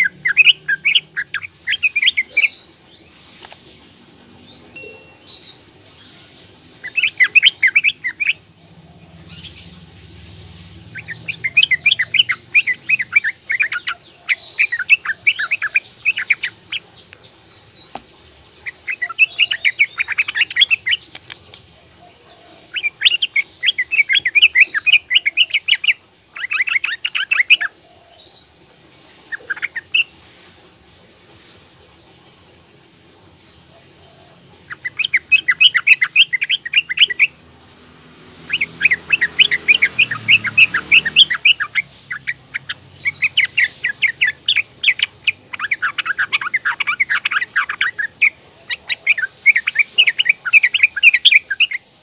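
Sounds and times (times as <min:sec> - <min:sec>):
bird chirping in fast runs: 0:38.5 - 0:48.8.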